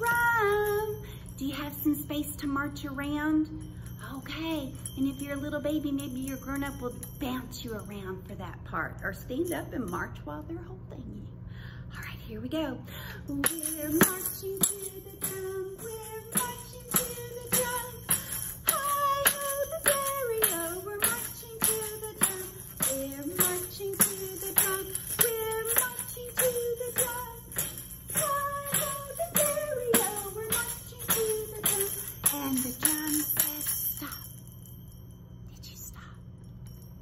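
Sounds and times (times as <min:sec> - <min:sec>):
woman singing: 0:00.0 - 0:11.3, 0:11.9 - 0:34.4
tambourine tapped with jingles: 0:13.0 - 0:35.4.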